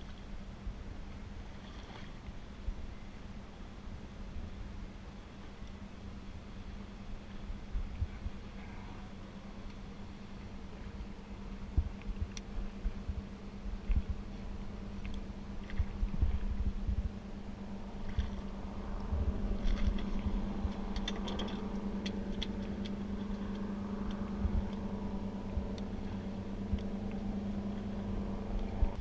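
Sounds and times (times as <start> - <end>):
boat engine idling: 0.0 - 29.0
wind buffeting microphone: 7.2 - 9.6, 10.6 - 29.0.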